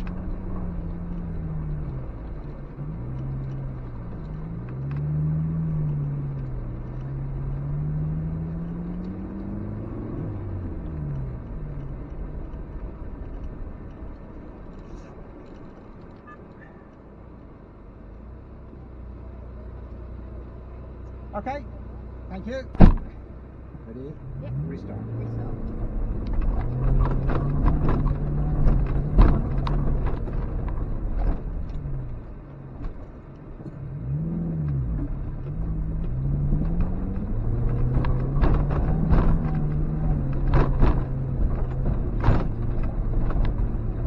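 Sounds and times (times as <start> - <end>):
car engine from inside cabin: 0.0 - 44.0.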